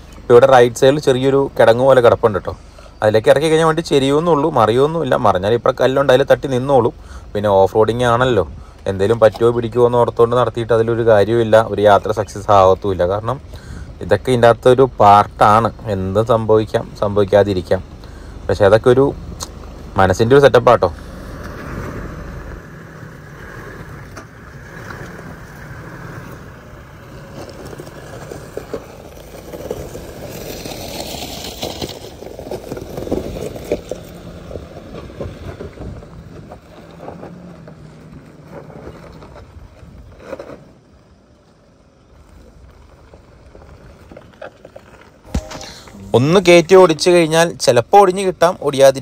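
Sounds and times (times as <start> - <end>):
off-road vehicle engine running: 0.0 - 48.7
knocks of vehicle on rough trail: 2.8 - 48.9
hissing noise: 45.3 - 46.6.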